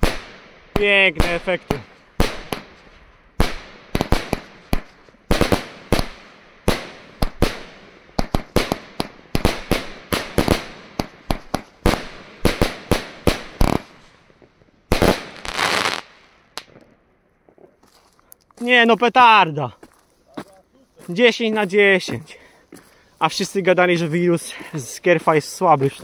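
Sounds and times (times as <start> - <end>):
firework cake bangs: 0.0 - 2.8.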